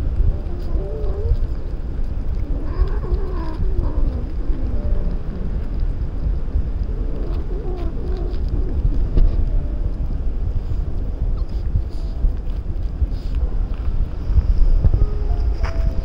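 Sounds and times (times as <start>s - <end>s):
wind buffeting microphone: 0.0s - 16.0s
cats meowing: 0.4s - 6.0s, 6.8s - 9.2s.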